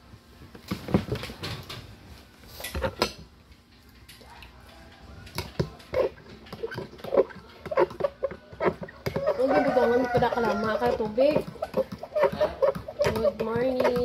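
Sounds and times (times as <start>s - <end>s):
spoon stirring milk in glass: 5.3s - 14.0s.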